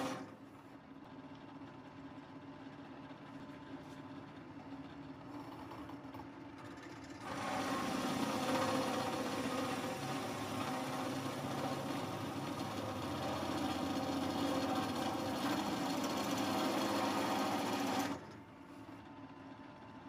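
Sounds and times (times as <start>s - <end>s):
drill press boring metal: 0.0s - 0.4s, 5.3s - 18.5s.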